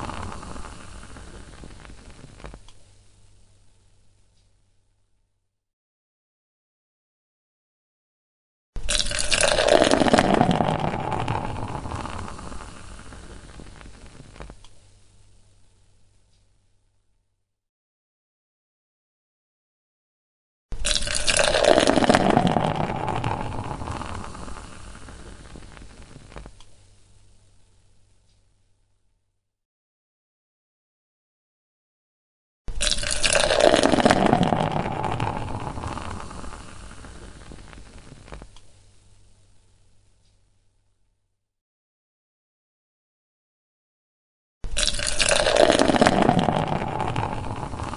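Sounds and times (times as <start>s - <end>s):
beer pouring into a glass: 0.0s - 2.2s, 8.8s - 14.1s, 20.8s - 26.1s, 32.7s - 38.4s, 44.7s - 47.9s
foam fizzing: 0.0s - 2.7s, 8.8s - 14.6s, 20.8s - 26.6s, 32.7s - 38.6s, 44.7s - 47.9s.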